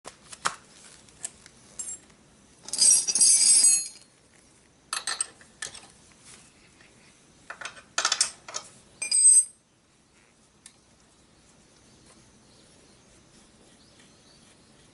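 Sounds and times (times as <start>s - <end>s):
metal chain clinking and rattling: 1.7s - 4.1s.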